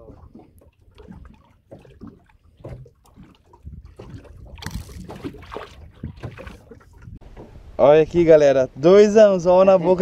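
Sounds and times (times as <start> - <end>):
fish splashing in water: 0.0 - 7.2
water sloshing: 0.0 - 8.4.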